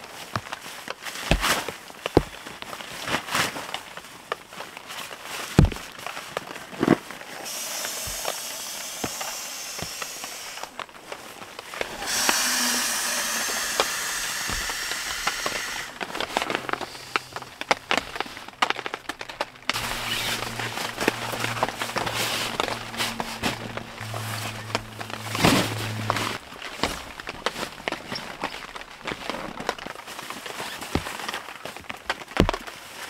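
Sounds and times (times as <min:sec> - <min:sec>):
sharp crinkles and clicks: 0:00.0 - 0:07.5, 0:15.9 - 0:33.0
nylon sleeping bag rustling: 0:00.0 - 0:33.0.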